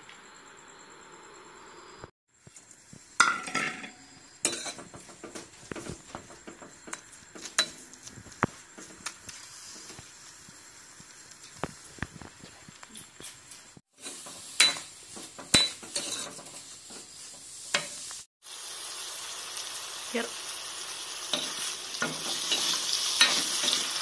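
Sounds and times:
light sizzle: 0.1 - 24.0
metal spoon scraping a wok: 3.3 - 5.1, 14.0 - 18.1, 21.3 - 24.0.

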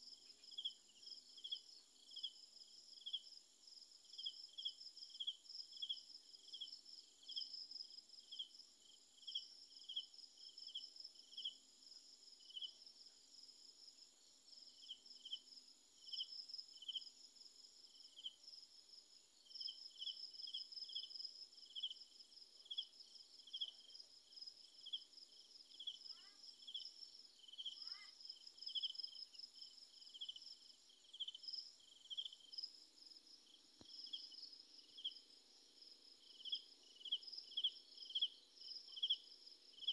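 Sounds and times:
continuous high insect trill: 0.0 - 39.9
insects chirping: 0.0 - 39.9.

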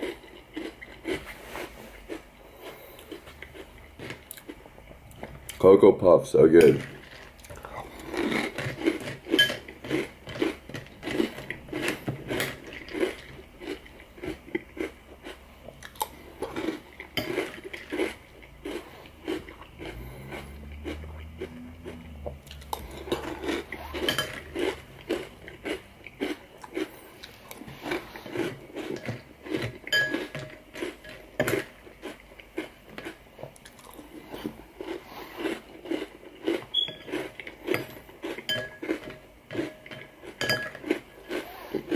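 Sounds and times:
person chewing crunchy cereal: 0.0 - 5.6, 6.4 - 41.9
metal spoon clinking bowl: 29.9 - 31.5, 37.7 - 39.2, 39.9 - 40.8.

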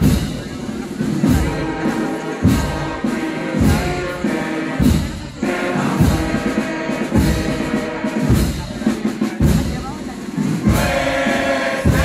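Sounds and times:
music: 0.0 - 12.0
crowd singing: 0.4 - 7.7, 10.6 - 12.0
bass drum beat: 4.8 - 12.0.

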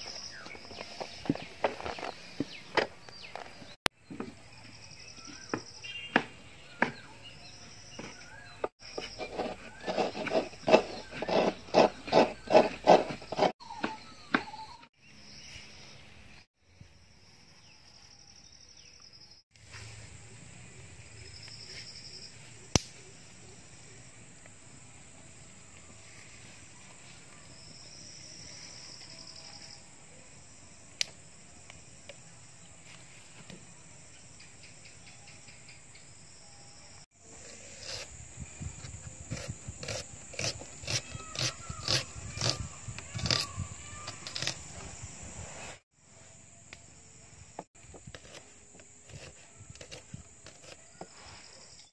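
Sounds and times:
knife slicing through onion: 39.2 - 43.5.

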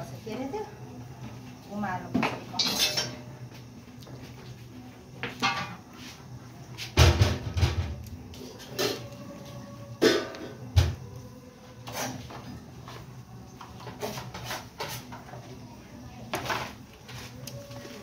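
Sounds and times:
steel pots and utensils clanking: 2.2 - 3.3, 5.4 - 5.8, 10.0 - 10.6.

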